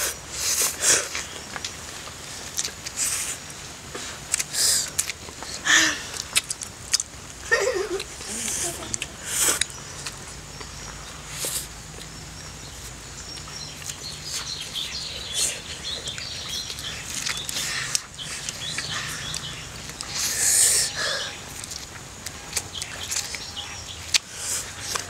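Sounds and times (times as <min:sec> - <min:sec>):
mouth clicks: 0:02.5 - 0:07.2, 0:07.8 - 0:12.6
people slurping noodles: 0:07.4 - 0:09.8.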